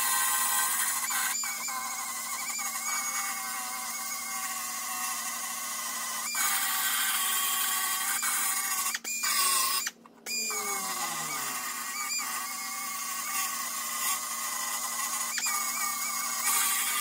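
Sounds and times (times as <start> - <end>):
belt sander grinding metal: 9.9 - 17.0.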